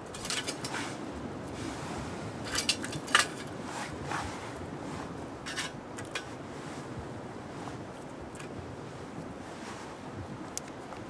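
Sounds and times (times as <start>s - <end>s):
twigs scraping thin metal: 0.0s - 1.0s, 2.4s - 3.9s, 5.4s - 6.4s.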